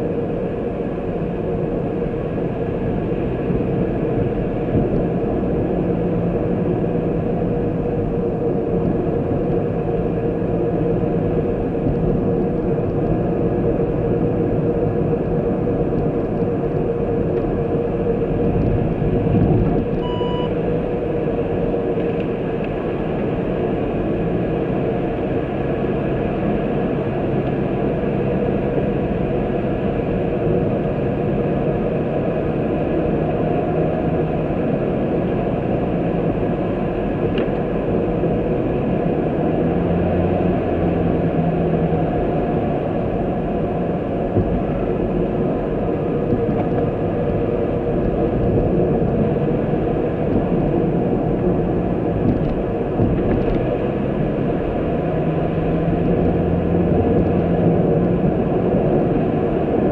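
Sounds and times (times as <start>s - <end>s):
car engine and tyre noise: 0.0s - 59.9s
short beep: 20.0s - 20.6s.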